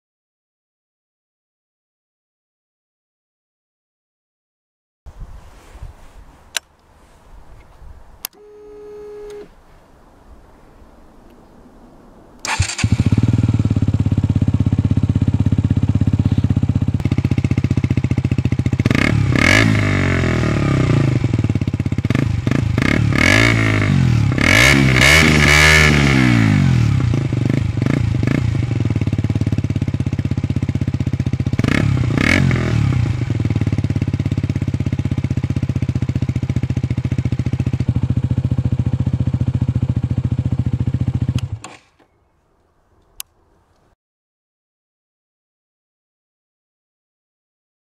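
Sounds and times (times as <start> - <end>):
motorcycle engine revving: 12.4 - 41.8
motorcycle engine idling: 12.5 - 20.3, 27.1 - 41.4.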